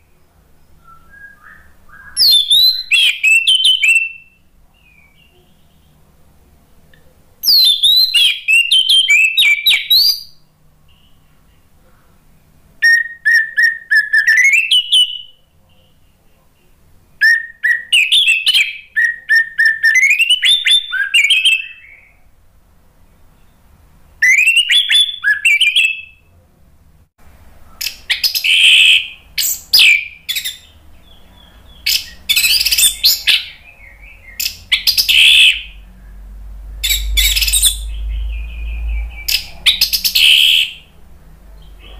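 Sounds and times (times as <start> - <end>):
thrush singing whistles and trills: 0.7 - 5.3, 7.4 - 11.0, 12.8 - 15.4, 17.2 - 22.2, 24.2 - 26.2, 27.8 - 41.0.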